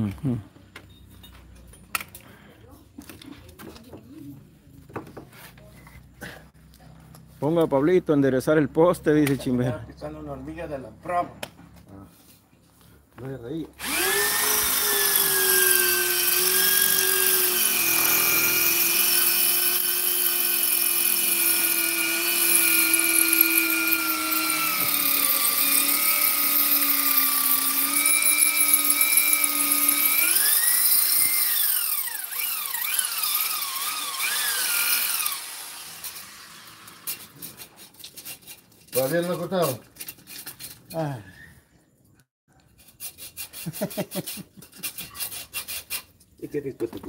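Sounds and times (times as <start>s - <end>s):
hiss from cutting: 13.8s - 27.7s
power tool motor whining: 13.8s - 37.2s.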